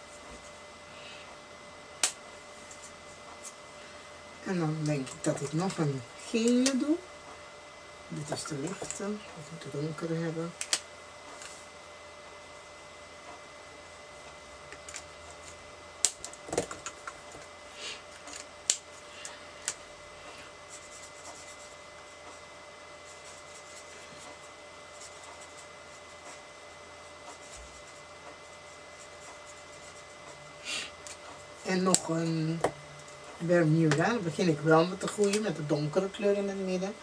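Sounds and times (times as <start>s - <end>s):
faint steady hum: 0.0s - 37.0s
markers clicking and tapping: 16.0s - 17.4s, 33.8s - 34.2s, 35.0s - 35.6s.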